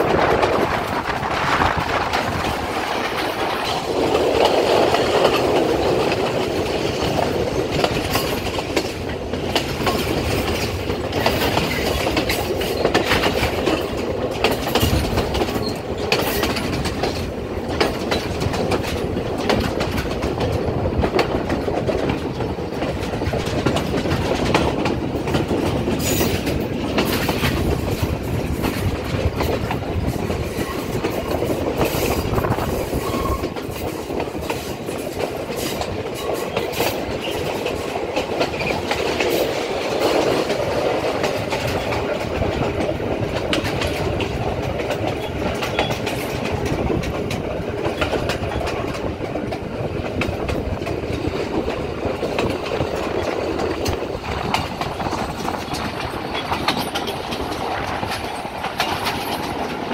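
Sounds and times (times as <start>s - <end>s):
train wheels rumbling on track: 0.0s - 59.9s
wheels clacking over rail joints: 0.0s - 59.9s.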